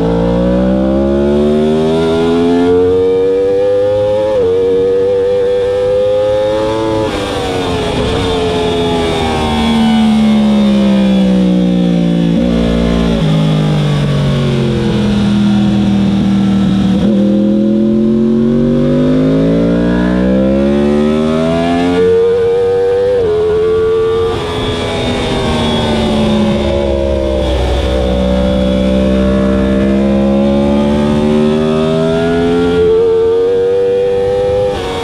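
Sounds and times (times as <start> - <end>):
motorcycle engine: 0.0 - 35.0
wind rush: 23.2 - 33.1.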